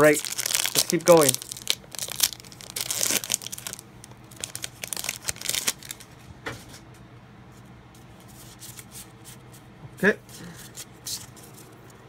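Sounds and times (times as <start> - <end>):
foil wrapper tearing and crinkling: 0.0 - 6.0.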